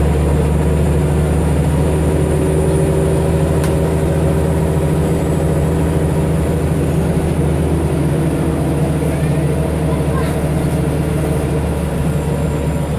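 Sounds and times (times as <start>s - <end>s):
bus diesel engine idling: 0.0s - 12.9s.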